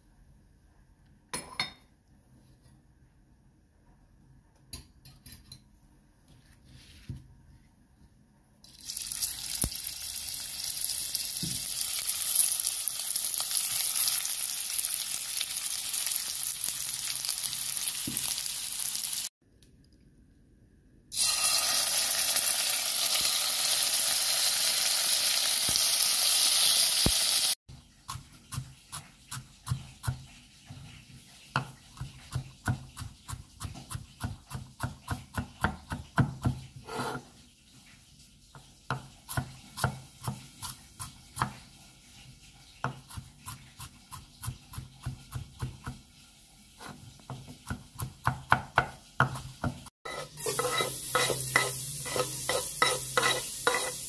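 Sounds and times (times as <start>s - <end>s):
frying hiss from pot: 8.6s - 19.3s, 21.1s - 54.0s
knife chopping on wooden board: 31.6s - 37.2s, 47.3s - 49.9s.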